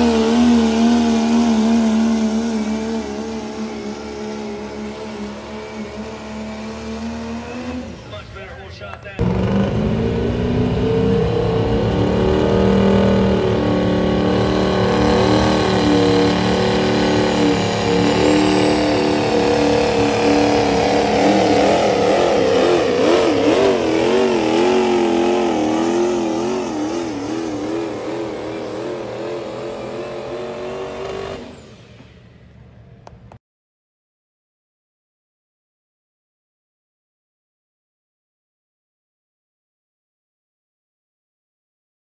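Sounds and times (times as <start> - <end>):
diesel truck engine under load: 0.0 - 33.4.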